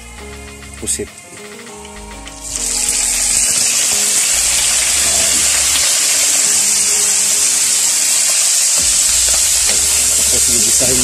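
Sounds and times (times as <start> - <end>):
squid sizzling in hot oil: 2.5 - 11.0.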